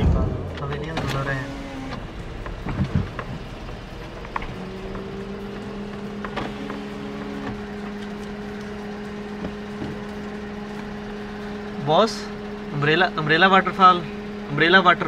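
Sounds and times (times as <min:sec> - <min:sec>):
steady low hum in car: 0:00.0 - 0:15.0.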